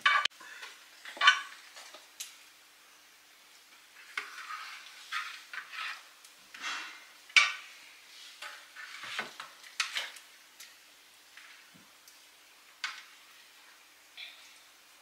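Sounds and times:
dishes scraping and clattering: 0.0 - 2.0, 4.0 - 7.7, 8.4 - 10.2.

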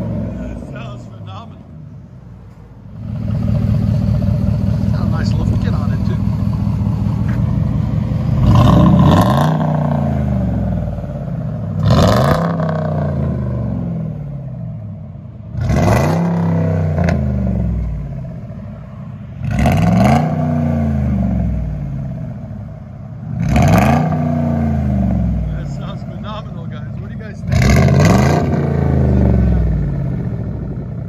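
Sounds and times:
truck engine revving: 0.0 - 1.7, 2.9 - 18.5, 19.4 - 31.0.

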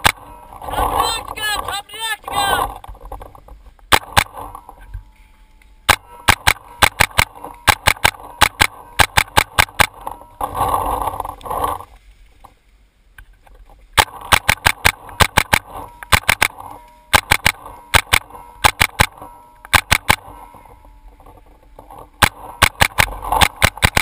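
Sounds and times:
paintball marker shots: 5.9 - 10.0, 14.0 - 20.3, 22.2 - 24.0.

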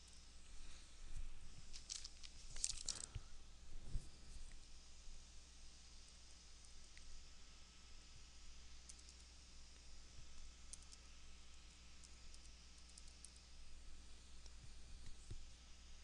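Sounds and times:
steady low hum: 0.0 - 16.0
faint computer keyboard typing: 10.7 - 11.0, 12.0 - 13.5.

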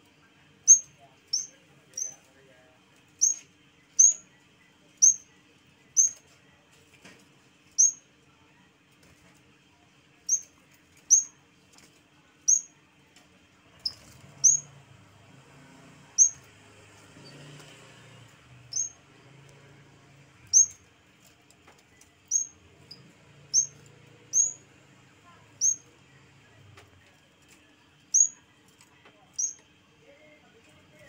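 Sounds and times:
bird chirping: 0.7 - 2.2, 3.2 - 4.2, 5.0 - 5.2, 6.0 - 6.2, 7.8 - 8.0, 10.3 - 10.5, 11.1 - 11.3, 12.5 - 12.7, 13.8 - 14.7, 16.2 - 16.4, 18.6 - 19.0, 20.5 - 20.8, 22.3 - 24.6, 25.6 - 25.8, 28.1 - 28.4, 29.4 - 29.6.

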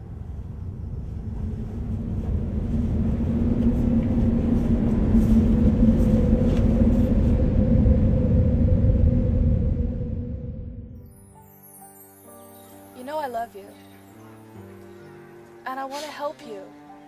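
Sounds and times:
deep rumble with low hum: 0.0 - 11.0.

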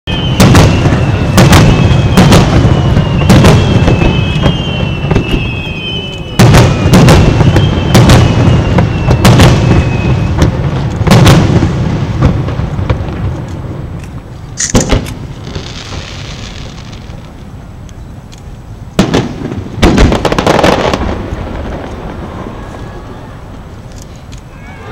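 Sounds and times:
firework shells bursting: 0.1 - 17.3.

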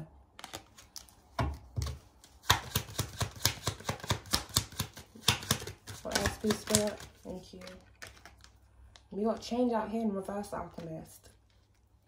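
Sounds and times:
cards flicking: 2.5 - 7.8.

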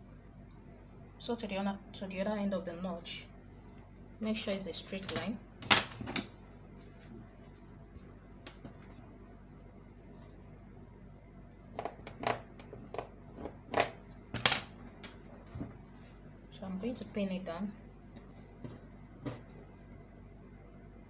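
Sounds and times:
low room hum: 0.0 - 21.0.

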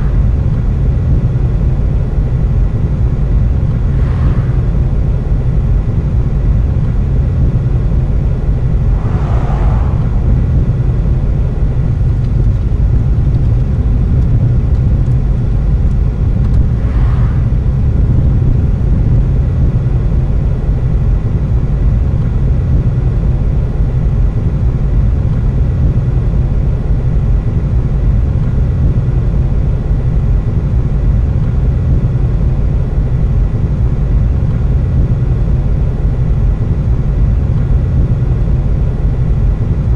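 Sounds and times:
passing vehicles whooshing: 0.0 - 0.9, 3.2 - 5.9, 8.4 - 12.4, 16.3 - 18.4
car interior road rumble: 0.0 - 20.2.

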